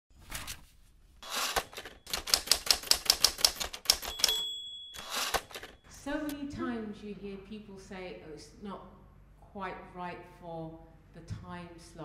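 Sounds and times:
typewriter rasp: 1.2s - 4.4s
typewriter clatter: 1.3s - 4.4s, 5.0s - 5.8s
typewriter keystrokes: 1.4s - 5.7s
typewriter bell ding: 3.9s - 5.9s.

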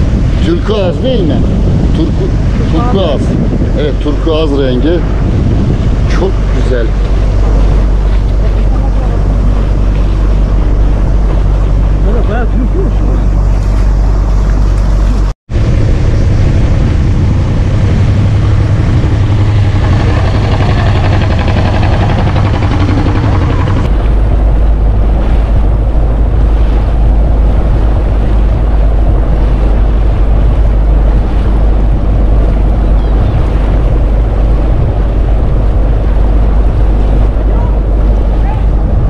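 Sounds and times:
boat engine running: 0.0s - 39.0s
water splashing: 0.0s - 39.0s
wind buffeting microphone: 0.0s - 39.0s.

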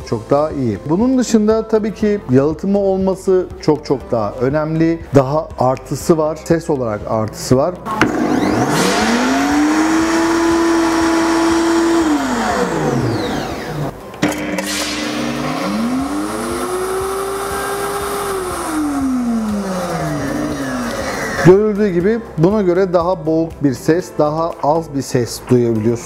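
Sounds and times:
blender running: 7.9s - 21.5s
muffled blender running: 7.9s - 21.5s.

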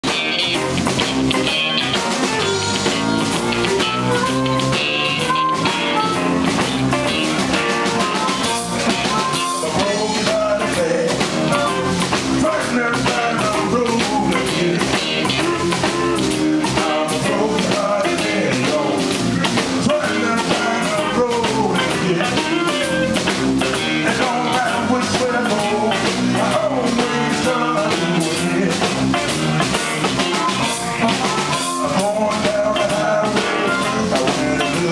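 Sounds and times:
blues band playing: 0.0s - 34.9s
drum kit: 0.0s - 34.9s
electric bass: 0.0s - 34.9s
electric guitar: 0.0s - 34.9s
amplified harmonica: 0.1s - 10.5s, 15.1s - 16.6s, 29.2s - 32.0s.

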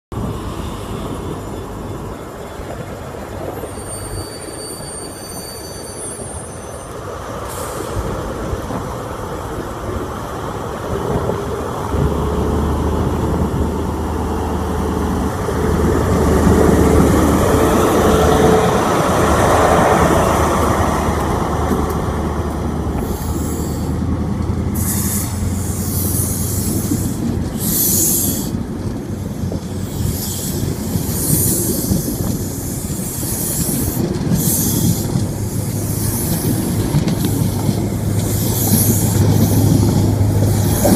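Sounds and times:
wheel-on-rail rumble: 0.1s - 40.9s
wheels hissing and squealing: 0.3s - 8.6s, 22.7s - 40.9s
diesel engine pulling away: 11.6s - 26.9s.

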